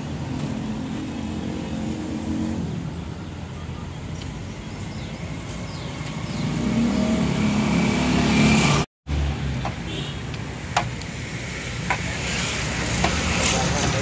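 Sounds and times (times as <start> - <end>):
vehicle passing by: 5.7 - 9.4.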